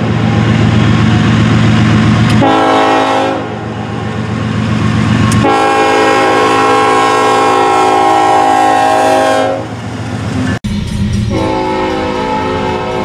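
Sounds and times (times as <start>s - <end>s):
diesel locomotive engine rumbling: 0.0s - 13.0s
locomotive air horn: 2.3s - 4.1s, 5.3s - 9.8s, 11.3s - 13.0s.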